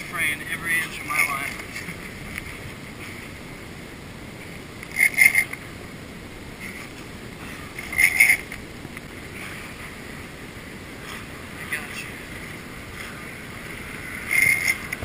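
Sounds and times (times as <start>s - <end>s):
steady background noise: 0.0s - 15.0s
fishing reel buzzing: 4.8s - 5.6s, 7.7s - 8.6s, 14.0s - 15.0s.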